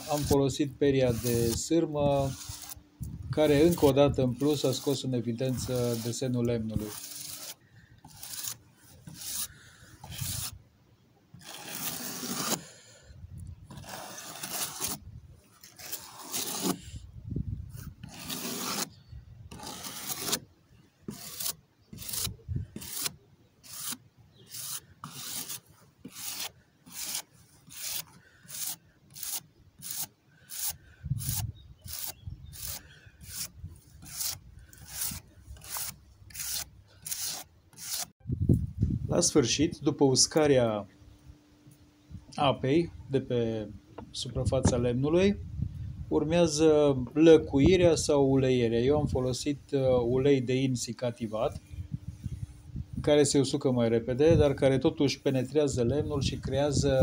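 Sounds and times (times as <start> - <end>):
wire brush scrubbing wood: 0.0 - 10.6, 11.4 - 12.6, 13.7 - 15.0, 15.6 - 16.9, 17.8 - 18.9, 19.5 - 20.4, 21.1 - 38.1.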